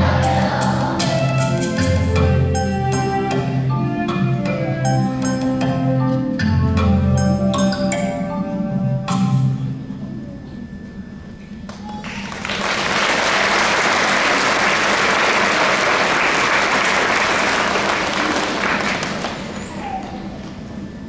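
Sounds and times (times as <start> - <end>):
audience applauding: 11.7 - 20.6.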